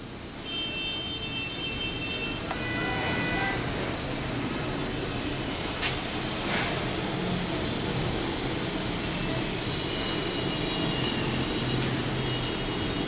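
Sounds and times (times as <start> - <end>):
garment steamer hissing: 2.6 - 13.0.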